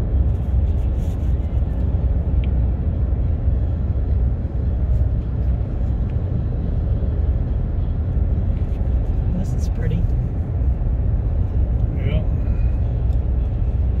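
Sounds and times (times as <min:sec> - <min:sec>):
engine hum: 0:00.0 - 0:14.0
tyre and road noise: 0:00.0 - 0:14.0.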